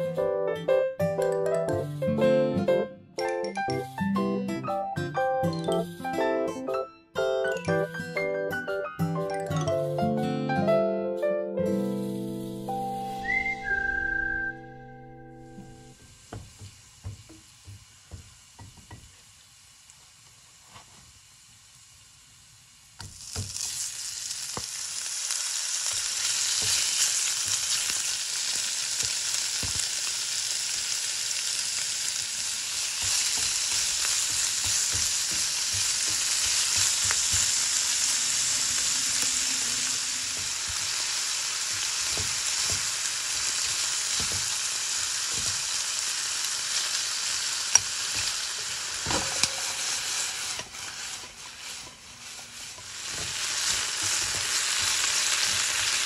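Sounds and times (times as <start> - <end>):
meat sizzling in frying pan: 15.6 - 56.0
utensil tapping and scraping: 32.9 - 37.6, 50.5 - 56.0.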